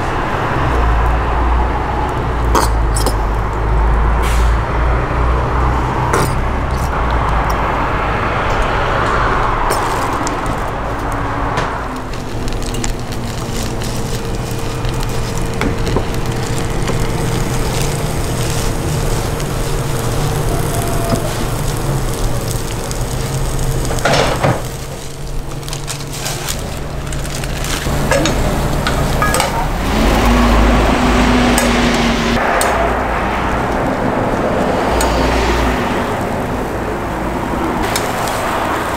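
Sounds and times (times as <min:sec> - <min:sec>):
low kitchen hum: 0:09.6 - 0:31.8
food sizzling on griddle: 0:09.7 - 0:11.1, 0:12.0 - 0:32.2, 0:37.8 - 0:38.9
rustle of shredded cabbage: 0:09.8 - 0:11.0, 0:12.1 - 0:24.0, 0:24.6 - 0:28.8.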